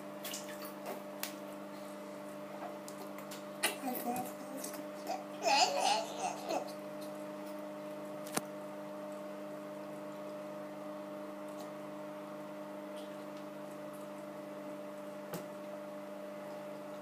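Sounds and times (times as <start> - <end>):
hum of held tones: 0.0 - 17.0
splashes and drips in bathwater: 0.2 - 1.4.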